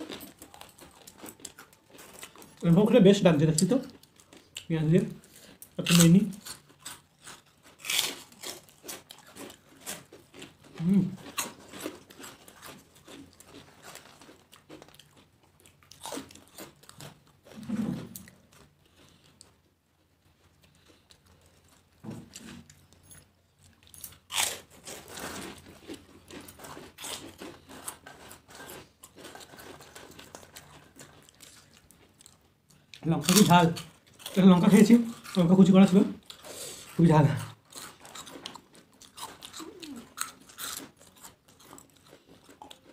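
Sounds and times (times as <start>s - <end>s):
crunchy wafer chewing: 0.0s - 42.9s.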